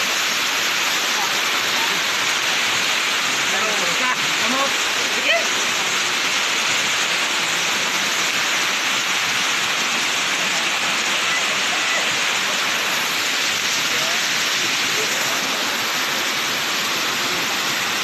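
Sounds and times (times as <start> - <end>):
waterfall rushing: 0.0 - 18.0.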